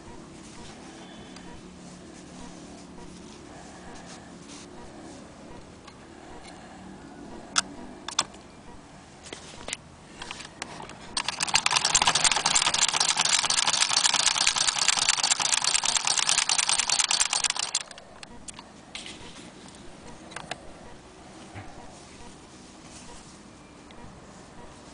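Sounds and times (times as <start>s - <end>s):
sharp clicks: 10.2s - 18.6s
sewing machine clattering: 11.2s - 18.0s.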